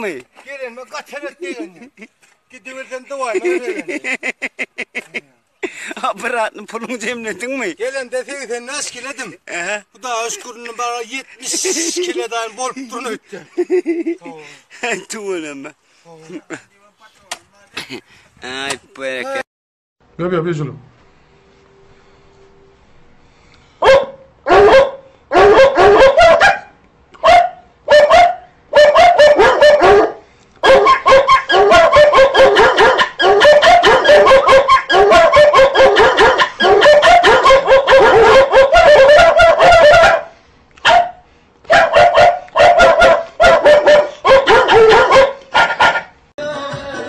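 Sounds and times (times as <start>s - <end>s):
dog yapping and yelping: 23.8s - 46.2s.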